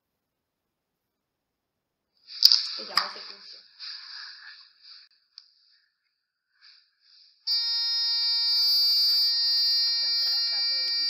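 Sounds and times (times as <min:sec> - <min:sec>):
buzzer alarm buzzing: 0:07.5 - 0:11.0.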